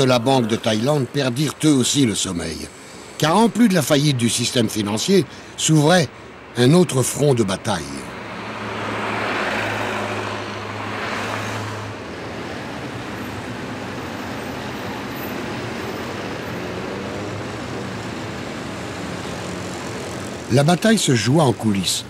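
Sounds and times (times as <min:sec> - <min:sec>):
road traffic noise: 0:00.0 - 0:22.0
vehicle engine drone passing: 0:08.0 - 0:21.2.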